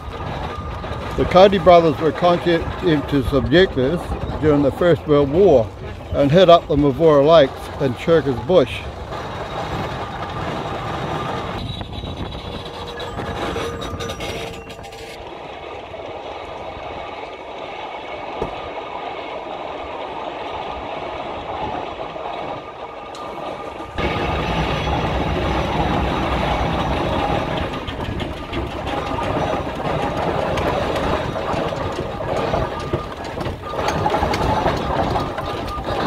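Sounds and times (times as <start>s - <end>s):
steam traction engine clattering: 0.0s - 36.0s.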